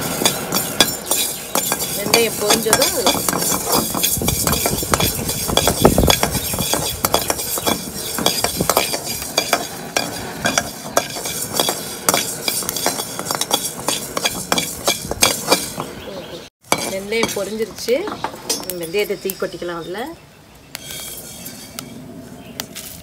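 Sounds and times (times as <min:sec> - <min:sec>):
metal ladle scraping a pan: 0:00.0 - 0:16.0, 0:16.6 - 0:19.2, 0:20.7 - 0:22.1
metal clinks: 0:00.1 - 0:15.9.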